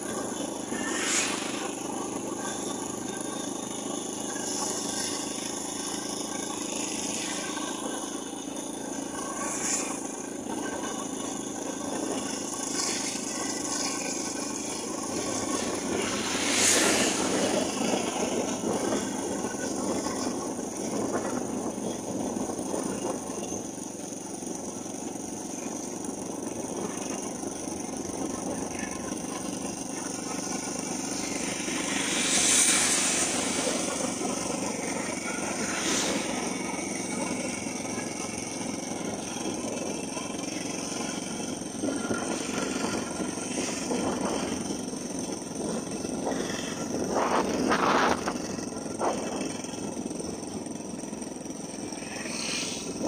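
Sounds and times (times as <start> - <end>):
vehicle engine and road noise: 0.0 - 53.0
motorcycle passing: 14.6 - 20.3, 28.8 - 39.5.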